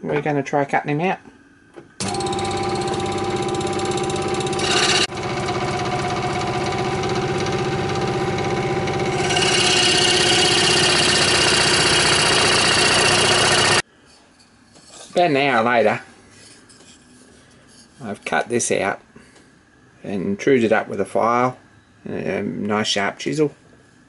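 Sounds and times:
scroll saw cutting wood: 2.0 - 13.8.

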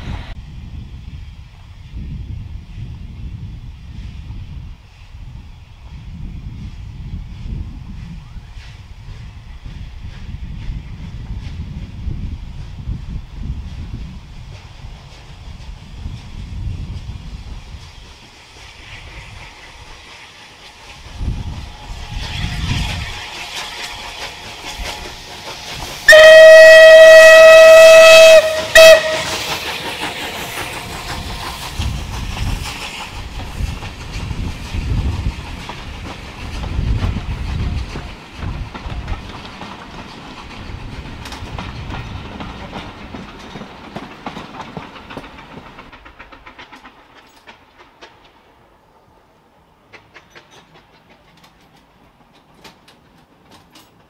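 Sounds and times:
steam locomotive exhaust beats: 0.0 - 54.0
wheels on rail joints: 1.5 - 54.0
steam whistle blast: 26.0 - 29.5.

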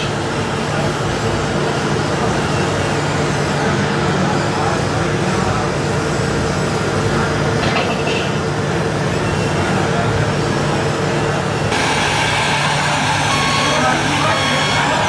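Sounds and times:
murmur of crowd in hall: 0.0 - 15.0
model trucks droning: 11.5 - 15.0
high-pitched tone: 11.7 - 15.0.

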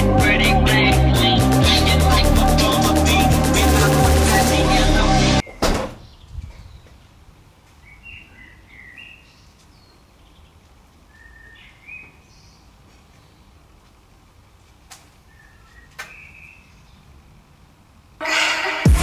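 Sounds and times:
background music: 0.0 - 5.4, 18.2 - 19.0.

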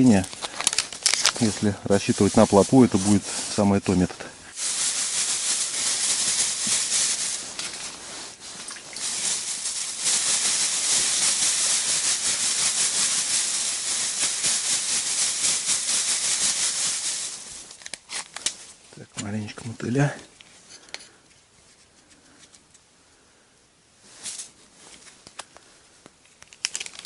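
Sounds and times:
groundbait rustling by hand: 0.0 - 18.8.

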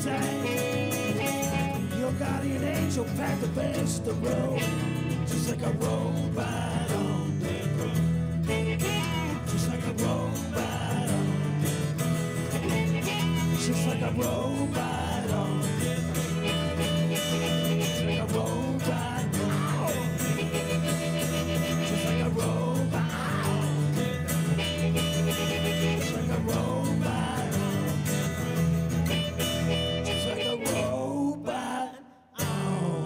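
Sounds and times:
harmonica: 0.0 - 2.8, 3.6 - 6.0, 7.6 - 31.2
man singing: 0.0 - 12.0, 12.6 - 33.0
acoustic guitar strumming: 0.0 - 31.7, 32.4 - 33.0.

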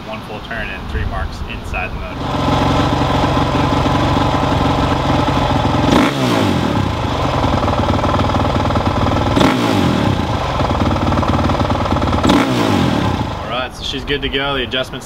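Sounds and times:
motorcycle engine idling and revving: 2.0 - 14.1.

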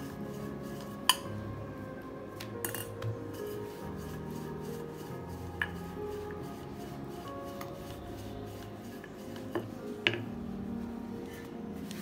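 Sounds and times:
rolling pin on dough: 0.0 - 1.3, 2.4 - 10.5
soft background music: 0.0 - 12.0.

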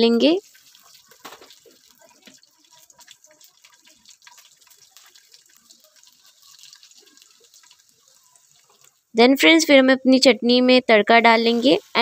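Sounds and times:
spices sizzling in hot oil: 0.0 - 12.0
small pops and crackles: 0.6 - 9.0.

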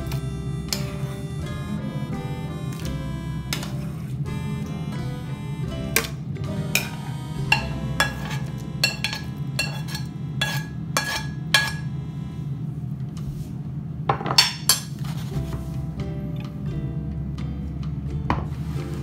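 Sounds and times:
plucked bell-like instrumental music: 0.0 - 10.6
steady low hum: 0.0 - 19.0.

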